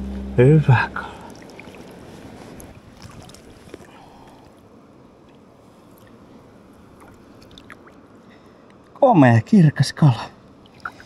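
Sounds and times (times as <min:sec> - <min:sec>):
river water lapping and trickling: 0:00.0 - 0:09.0, 0:10.3 - 0:11.0
small splashing ticks: 0:01.2 - 0:04.4, 0:06.9 - 0:08.0.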